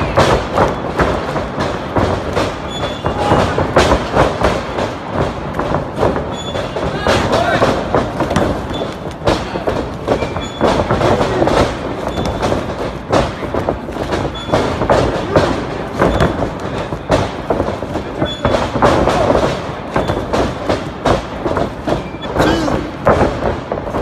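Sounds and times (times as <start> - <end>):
thuds on wrestling ring boards: 0.0 - 24.0.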